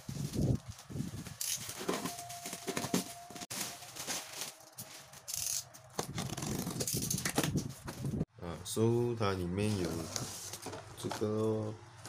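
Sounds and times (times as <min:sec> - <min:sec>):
plastic wrapping rustling: 0:00.0 - 0:08.2.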